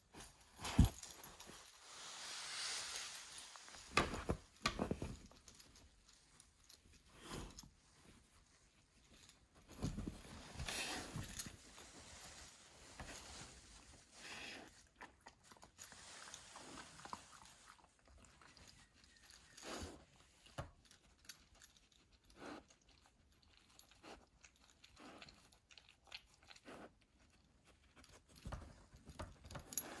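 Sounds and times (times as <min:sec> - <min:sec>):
cloth rustling: 0:00.0 - 0:14.2.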